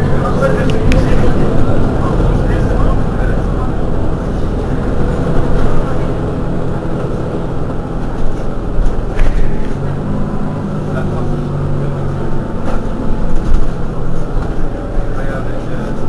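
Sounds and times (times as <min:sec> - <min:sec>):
bus idling: 0:00.0 - 0:16.0.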